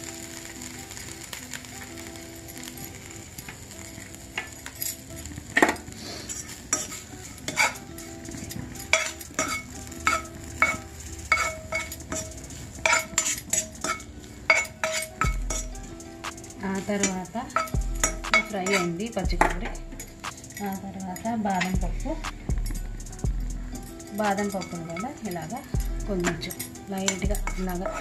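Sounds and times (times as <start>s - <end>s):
soft frying sizzle: 0.0s - 28.0s
metal spatula scraping pan: 3.5s - 15.8s, 16.8s - 21.7s, 26.3s - 28.0s.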